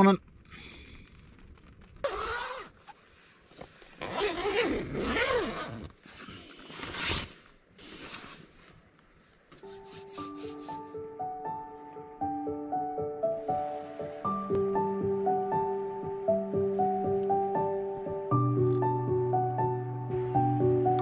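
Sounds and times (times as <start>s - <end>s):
tent canvas rustling: 1.2s - 12.1s
background music: 9.6s - 21.0s.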